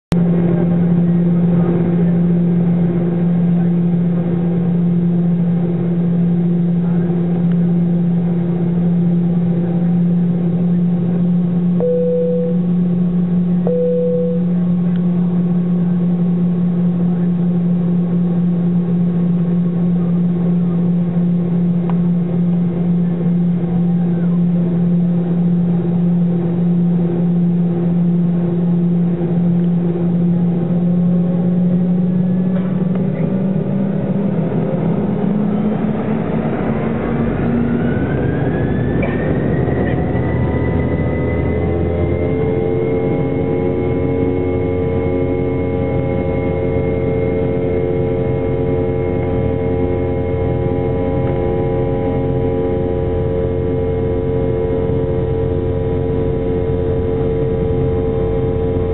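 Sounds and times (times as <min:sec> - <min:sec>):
aircraft cabin droning hum: 0:00.1 - 0:33.3, 0:39.8 - 0:58.9
short higher tones: 0:11.8 - 0:14.9.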